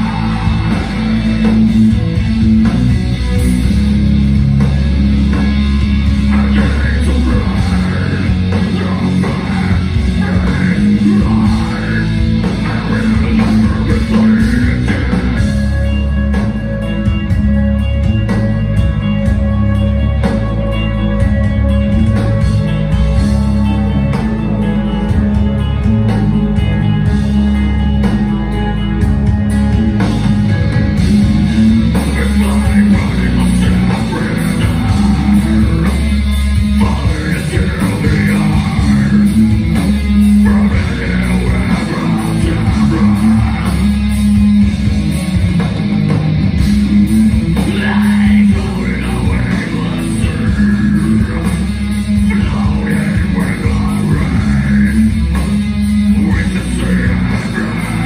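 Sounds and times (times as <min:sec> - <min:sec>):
bass guitar: 0:00.0 - 0:58.0
distorted electric guitars: 0:00.0 - 0:58.0
drum kit: 0:00.0 - 0:58.0
person singing: 0:06.0 - 0:15.7, 0:31.6 - 0:44.4, 0:47.5 - 0:58.0.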